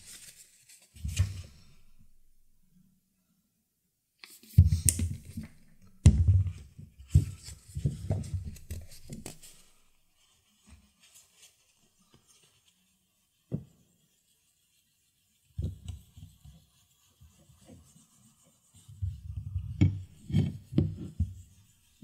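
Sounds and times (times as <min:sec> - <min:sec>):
paper towel rustling: 0:00.0 - 0:01.7.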